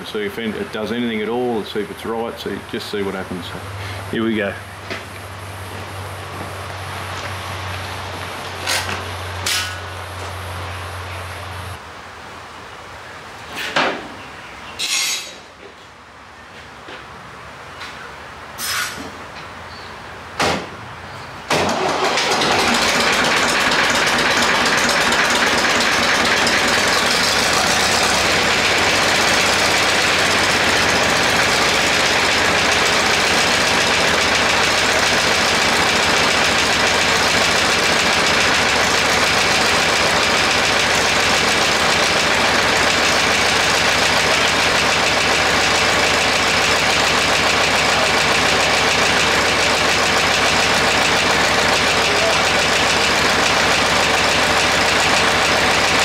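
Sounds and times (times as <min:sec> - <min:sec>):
tractor diesel engine starting: 0:21.5 - 0:56.0.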